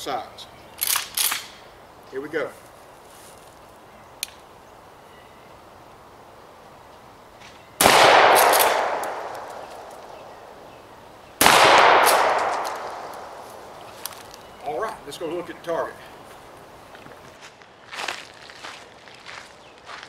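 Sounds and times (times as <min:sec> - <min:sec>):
shotgun shots ringing out: 0:07.8 - 0:09.9, 0:11.4 - 0:13.4.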